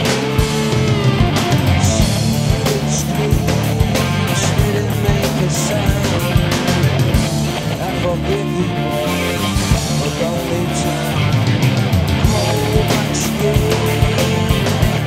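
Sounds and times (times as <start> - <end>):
rock music: 0.0 - 15.0
steady drum beat: 0.0 - 15.0.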